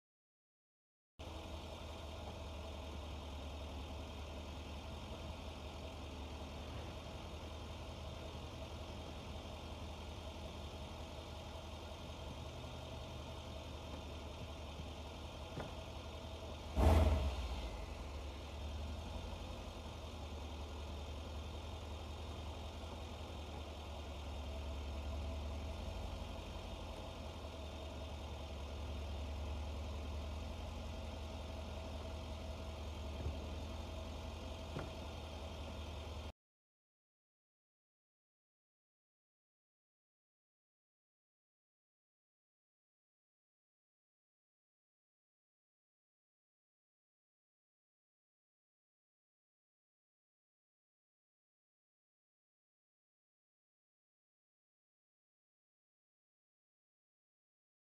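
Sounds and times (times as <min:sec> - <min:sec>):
low idle hum: 0:01.2 - 0:36.3.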